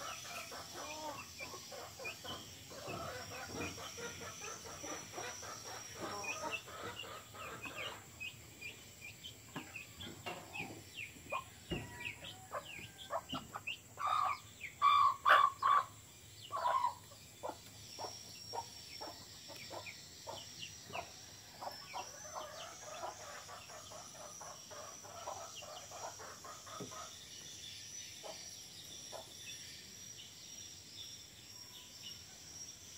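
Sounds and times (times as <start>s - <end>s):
loud chicken calls: 0.0s - 8.3s, 11.2s - 27.2s
chickens clucking: 0.0s - 27.5s
chicks peeping: 0.0s - 30.2s
high insect buzz: 0.0s - 32.9s.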